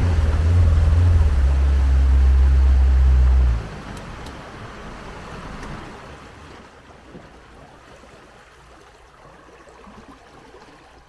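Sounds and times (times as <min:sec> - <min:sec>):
outboard motor humming: 0:00.0 - 0:07.3
water washing along hull: 0:00.0 - 0:11.0.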